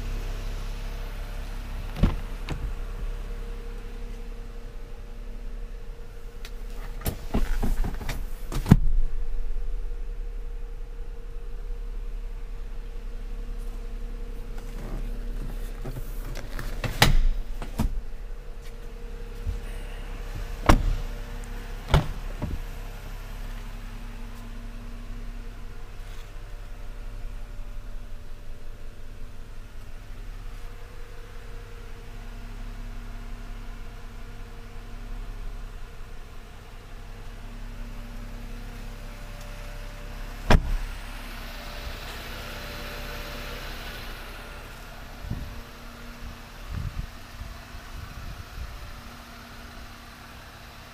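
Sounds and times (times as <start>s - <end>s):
steady low hum: 0.0s - 50.9s
car door shutting: 1.7s - 3.2s, 6.5s - 9.1s, 14.4s - 24.5s, 40.4s - 41.2s
sharp knocks and clunks: 1.9s - 2.8s, 20.6s - 21.1s, 21.9s - 22.7s, 40.5s - 40.8s.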